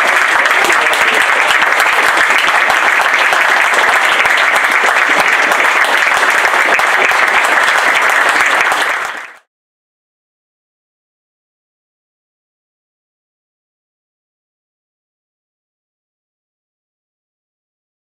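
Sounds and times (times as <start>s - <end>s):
crowd applauding: 0.0s - 9.5s.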